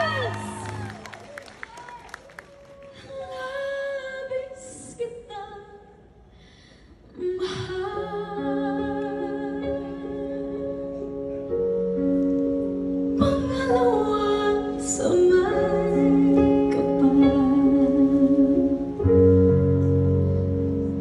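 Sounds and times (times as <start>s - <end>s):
woman singing a ballad: 3.0s - 6.0s, 7.1s - 11.0s, 13.2s - 19.5s.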